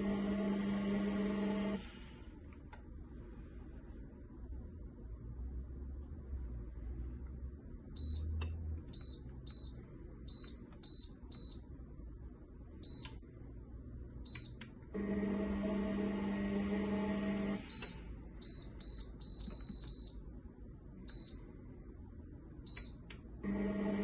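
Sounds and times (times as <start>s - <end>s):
blender base low hum: 0.0s - 2.5s, 15.0s - 18.8s, 23.4s - 24.0s.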